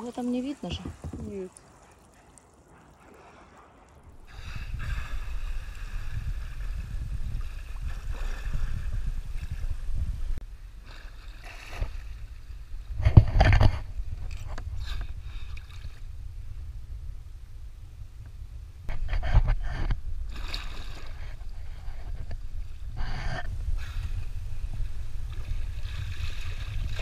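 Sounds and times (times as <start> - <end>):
water splashing against kayak hull: 0.0 - 9.7
low rumbling rush: 3.1 - 10.8.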